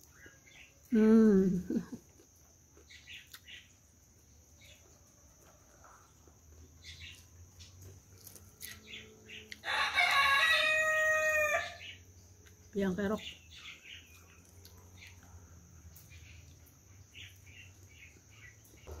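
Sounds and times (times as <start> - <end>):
crunching of chewed flatbread: 0.0 - 0.9, 1.8 - 10.5, 13.6 - 19.0
rooster crowing: 9.6 - 12.0.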